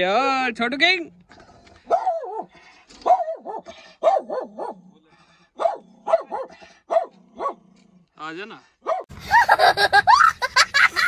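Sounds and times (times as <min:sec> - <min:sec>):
dog barking: 0:01.8 - 0:04.8, 0:05.6 - 0:07.6, 0:08.8 - 0:09.1.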